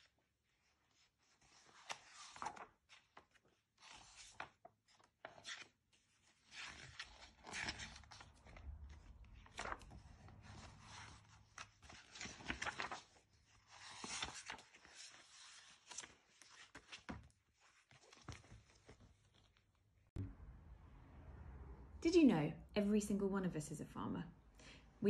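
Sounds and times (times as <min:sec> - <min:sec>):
book pages turning: 0:00.6 - 0:19.8.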